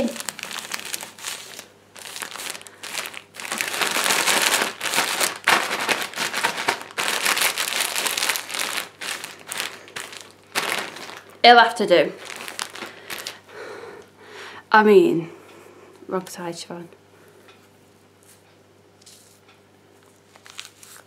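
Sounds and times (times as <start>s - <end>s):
foil cap crinkling: 0.0s - 13.4s, 20.3s - 21.0s.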